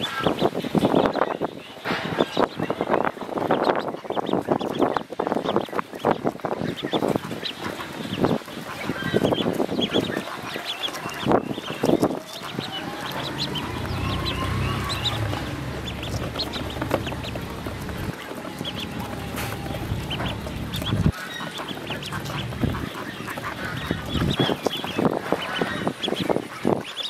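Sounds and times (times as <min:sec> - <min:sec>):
ducklings peeping: 0:00.0 - 0:27.0
low rumble: 0:11.2 - 0:25.8.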